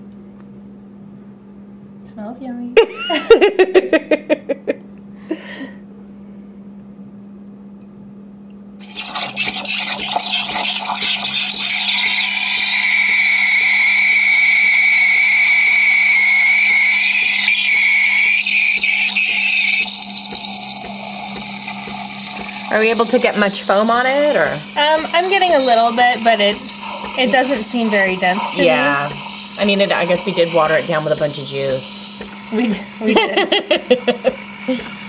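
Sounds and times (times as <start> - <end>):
steam wand hissing: 8.8 - 35.0
high steady squeal: 10.3 - 32.8.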